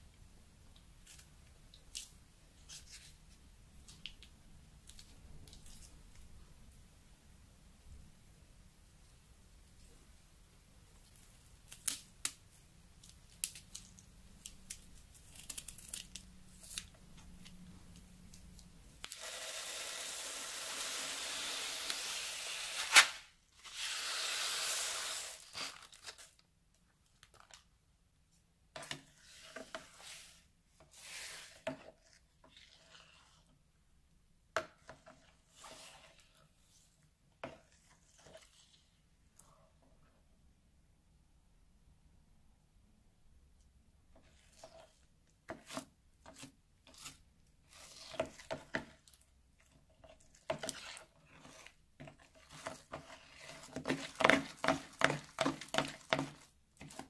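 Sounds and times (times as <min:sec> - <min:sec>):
beads pouring with a hiss: 0:19.1 - 0:25.6
slime squishing and crackling: 0:49.9 - 0:57.0.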